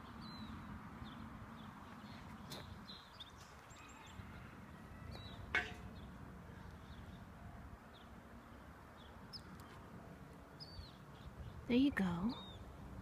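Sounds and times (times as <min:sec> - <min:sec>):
bird chirps: 0:10.6 - 0:12.7.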